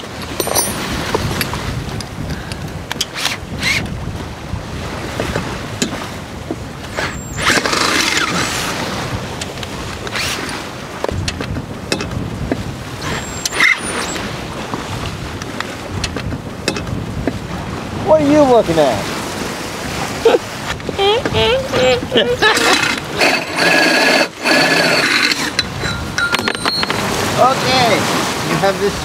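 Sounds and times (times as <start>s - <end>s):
sea washing past a hull: 0.0s - 29.0s
wind buffeting microphone: 0.0s - 29.0s
cordless drill boring metal: 3.1s - 3.9s, 6.9s - 8.6s, 13.0s - 14.2s, 22.4s - 27.0s.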